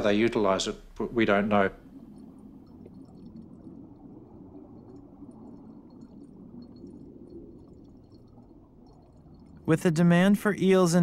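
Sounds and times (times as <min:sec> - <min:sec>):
underwater rush of moving water: 0:00.8 - 0:09.8.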